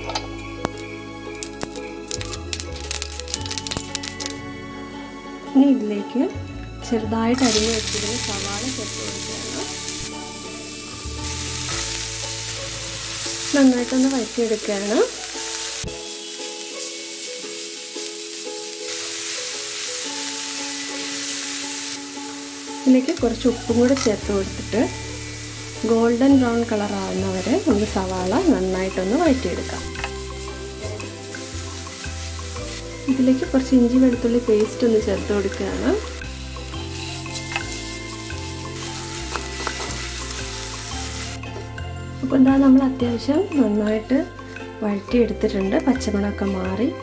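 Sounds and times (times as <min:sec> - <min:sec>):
onions sizzling in frying pan: 0:00.0 - 0:04.4, 0:07.3 - 0:42.9
light plucked background music: 0:00.0 - 0:47.0
spatula stirring in pan: 0:26.7 - 0:41.6
spatula scraping a pan: 0:36.0 - 0:41.0.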